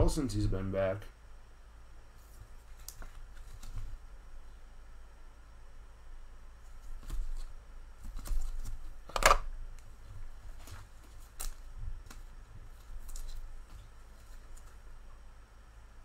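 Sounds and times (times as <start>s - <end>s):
cards and plastic holders clicking: 9.1s - 9.5s.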